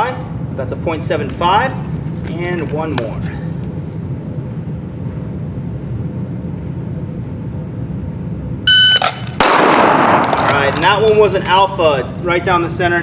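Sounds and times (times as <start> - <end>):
high-pitched electronic beep: 8.7 - 9.1.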